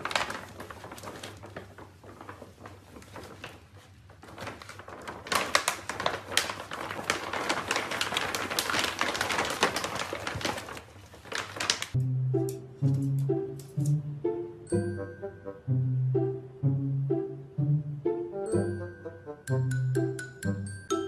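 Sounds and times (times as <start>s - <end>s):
foil bag crinkling: 0.0s - 12.0s.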